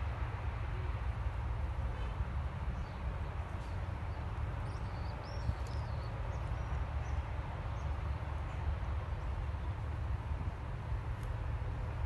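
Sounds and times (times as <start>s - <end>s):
small birds chirping: 4.1s - 8.0s.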